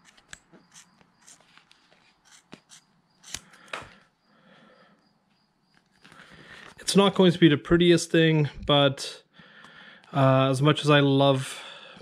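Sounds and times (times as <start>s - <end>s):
soft handling clicks and rubs: 0.0s - 3.5s
sharp ticks: 2.2s - 3.5s.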